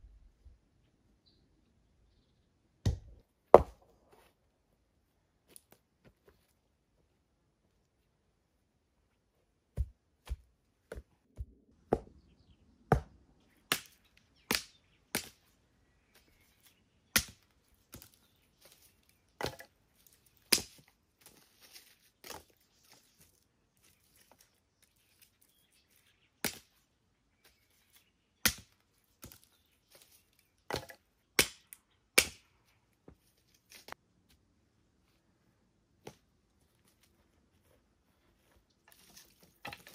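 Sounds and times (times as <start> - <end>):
firewood being chopped: 2.9 - 3.9, 12.9 - 15.4, 17.1 - 18.2, 19.4 - 19.7, 20.4 - 20.9, 26.4 - 26.7, 28.4 - 29.5, 30.7 - 32.5, 38.9 - 39.9
wood handling noises: 36.0 - 39.9.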